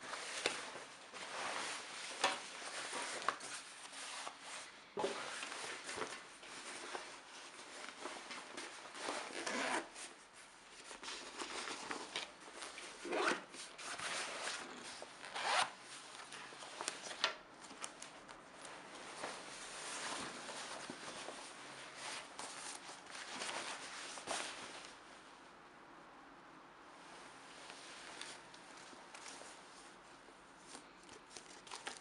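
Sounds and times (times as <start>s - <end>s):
jacket zippers zipping: 9.1s - 9.9s, 13.0s - 13.5s, 15.2s - 15.8s.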